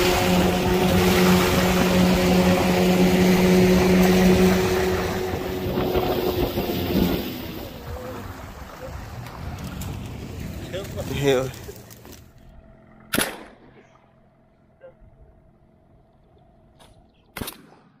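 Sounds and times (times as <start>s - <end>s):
wind on microphone: 0.0s - 10.6s
water rushing along hull: 0.0s - 11.7s
outboard motor running: 0.0s - 17.2s.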